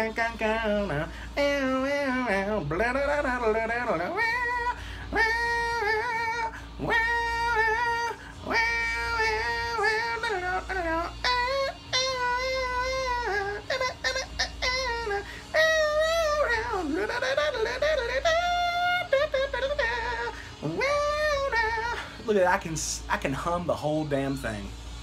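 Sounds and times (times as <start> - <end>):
man humming: 0.0 - 22.3
man breathing: 1.0 - 1.4, 4.8 - 5.1, 15.2 - 15.5, 20.3 - 20.6.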